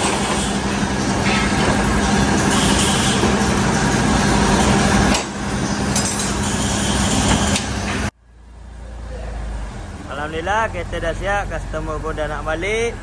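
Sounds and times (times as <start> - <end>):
workshop machinery noise: 0.0 - 8.2.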